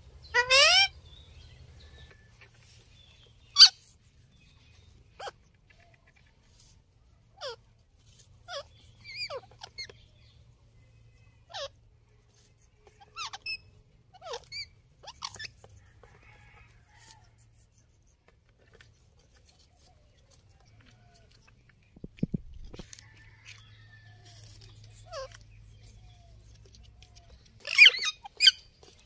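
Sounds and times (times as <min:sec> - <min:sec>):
parakeets squeaky calls: 0:00.2 - 0:01.2, 0:03.4 - 0:03.8, 0:05.0 - 0:05.4, 0:08.4 - 0:10.0, 0:11.4 - 0:11.8, 0:13.0 - 0:15.6, 0:27.6 - 0:28.8.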